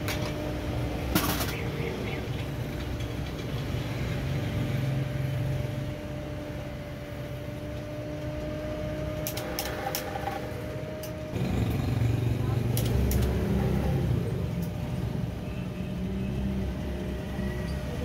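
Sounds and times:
coil-winding machine humming: 2.0s - 14.5s.

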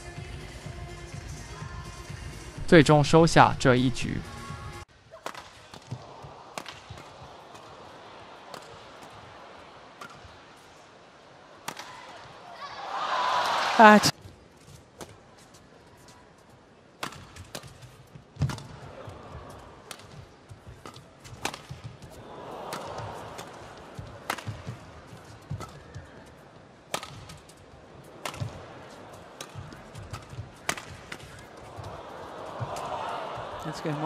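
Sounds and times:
arena crowd noise: 0.0s - 14.2s, 18.6s - 34.0s
rackets striking shuttlecock: 5.1s - 7.9s, 8.5s - 9.3s, 10.0s - 10.4s, 11.6s - 12.0s, 17.0s - 18.8s, 19.8s - 22.0s, 22.7s - 26.0s, 26.9s - 33.0s.

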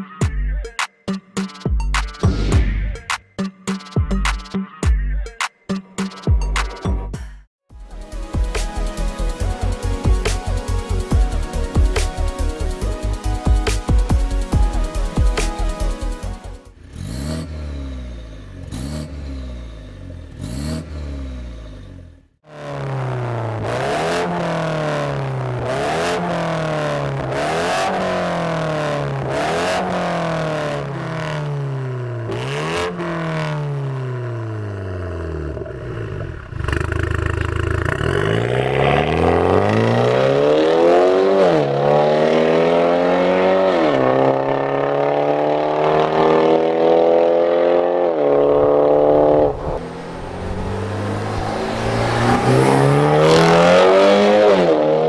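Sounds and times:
car engine revving: 16.6s - 55.0s
car moving off: 16.7s - 55.0s.

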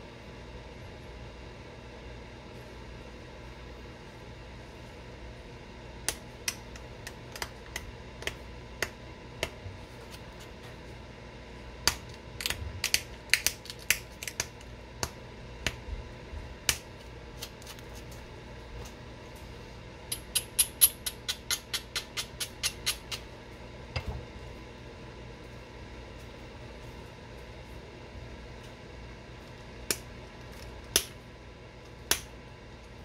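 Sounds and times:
stone flaking clicks and snaps: 6.0s - 9.5s, 11.8s - 15.8s, 29.9s - 31.2s, 32.1s - 32.3s.

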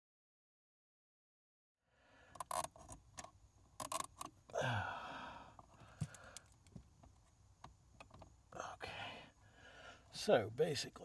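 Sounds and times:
small plastic clicks: 2.3s - 4.4s
zip ties pulled tight: 3.8s - 4.2s.

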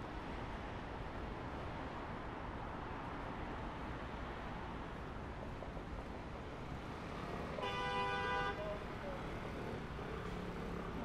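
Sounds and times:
city traffic noise: 0.0s - 11.0s
car horn: 7.6s - 8.6s.

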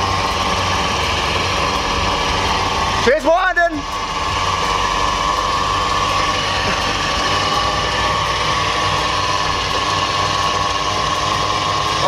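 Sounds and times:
car engine idling: 0.0s - 12.0s
supercharger whining: 0.0s - 12.0s.

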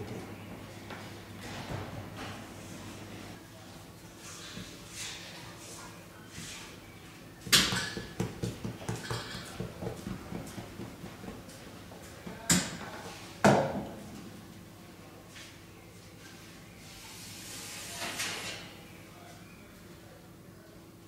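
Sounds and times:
hands knocking dough on wooden board: 7.5s - 11.5s.

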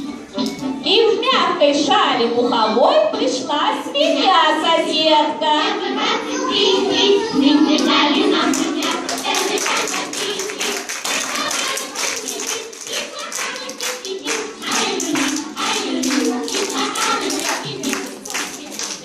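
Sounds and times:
music: 0.0s - 19.0s
voices: 1.2s - 19.0s
crowd clapping: 7.8s - 19.0s.

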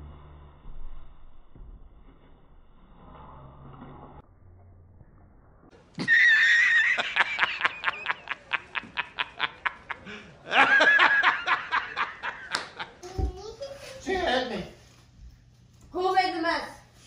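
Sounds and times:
man laughing hysterically: 6.0s - 13.0s.

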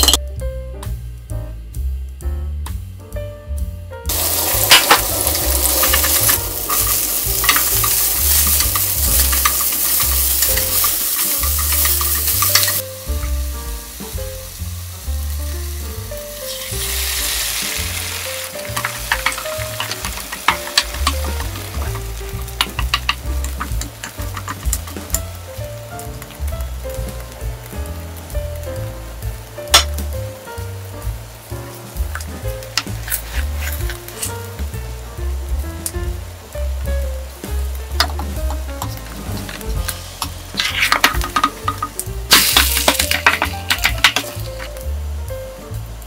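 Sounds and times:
background music with low beat: 0.0s - 46.0s
vegetables sizzling in frying pan: 4.1s - 46.0s
spatula clicking on pan: 5.7s - 12.8s, 18.7s - 25.3s, 40.2s - 44.7s.

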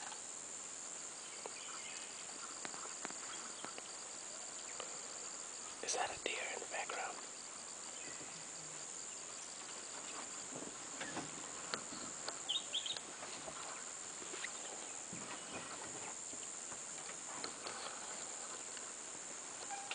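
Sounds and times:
high insect drone: 0.0s - 19.9s
rustles in undergrowth: 7.1s - 19.9s.

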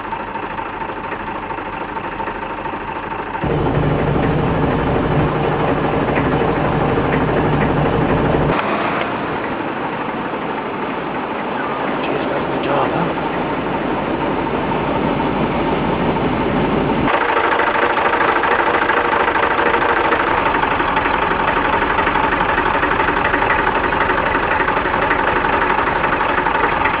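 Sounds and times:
tractor engine idling: 0.0s - 27.0s.

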